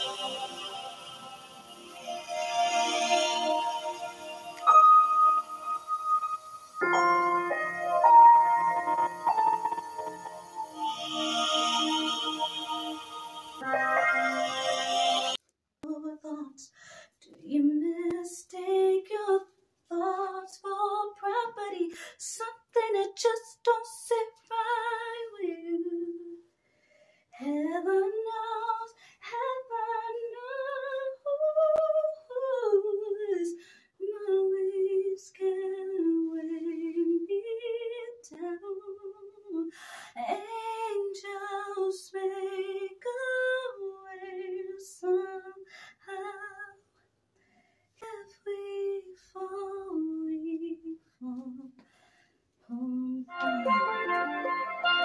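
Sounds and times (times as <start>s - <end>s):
woman singing solo: 52.8s - 55.0s.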